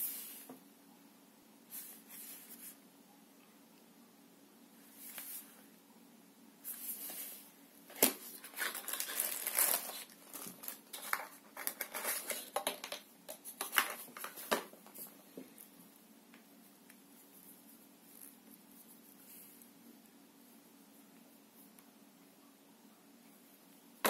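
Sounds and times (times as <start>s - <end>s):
cardboard and plastic rustling: 7.9s - 15.6s.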